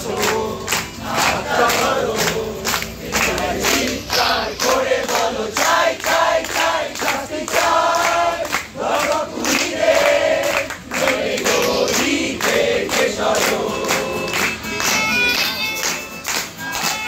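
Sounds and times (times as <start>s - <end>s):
crowd singing in unison: 0.0s - 14.6s.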